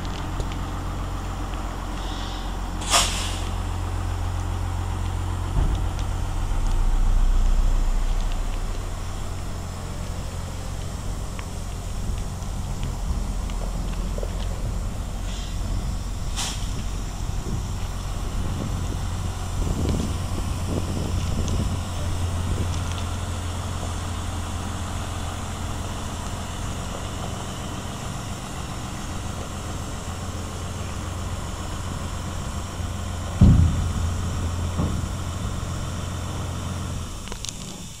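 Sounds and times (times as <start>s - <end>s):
tractor diesel engine: 0.0s - 38.0s
trailer rolling over gravel: 0.0s - 38.0s
loud thump: 5.5s - 6.0s, 33.4s - 36.0s.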